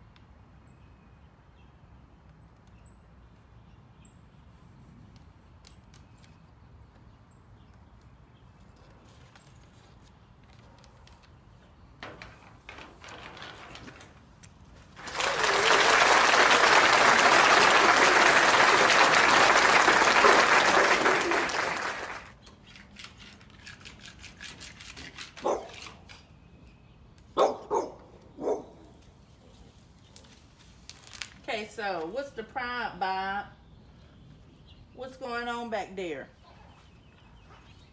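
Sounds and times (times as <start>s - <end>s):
soft tape rustles: 5.0s - 15.0s, 28.2s - 32.2s
applause: 15.0s - 22.4s.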